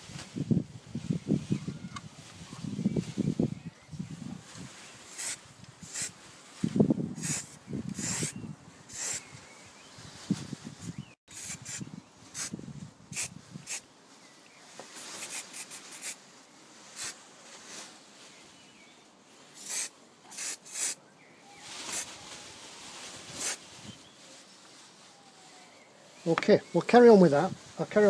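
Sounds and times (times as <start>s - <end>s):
aerosol spray can hissing: 5.1s - 6.2s, 7.2s - 9.2s, 11.3s - 12.5s, 13.1s - 13.8s, 15.2s - 16.2s, 17.0s - 17.2s, 19.6s - 21.0s, 23.4s - 23.6s.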